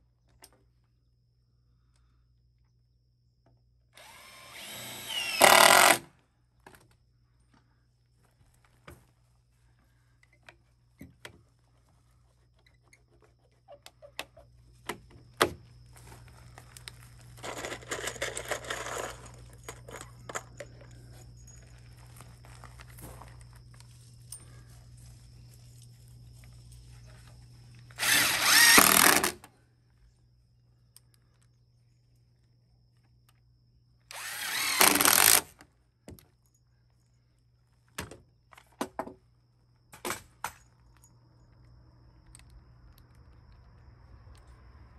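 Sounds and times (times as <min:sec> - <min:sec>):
power drill running: 0:04.0 - 0:06.1, 0:28.0 - 0:29.4, 0:34.1 - 0:35.5.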